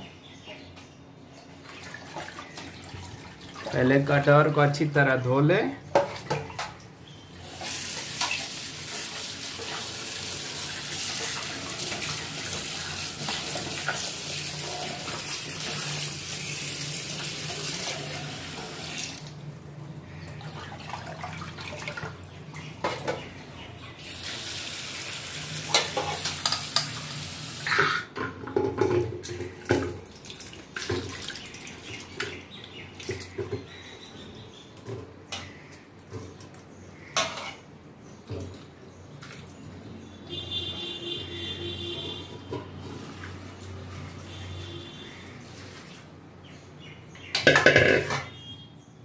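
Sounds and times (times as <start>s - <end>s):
tap water running into steel bowl: 7.4s - 19.3s, 24.0s - 28.0s, 28.6s - 33.6s.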